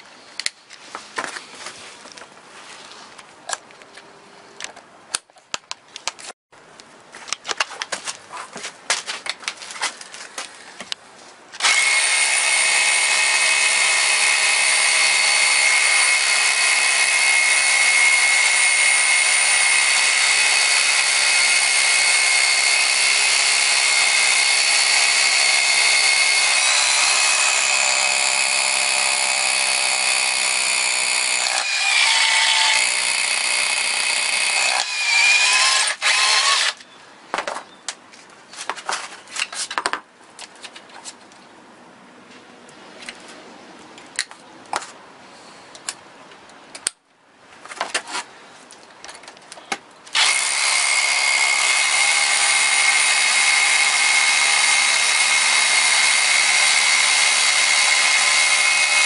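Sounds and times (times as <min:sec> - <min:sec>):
rotary hammer drilling concrete: 0:11.6 - 0:36.8, 0:50.1 - 0:59.0.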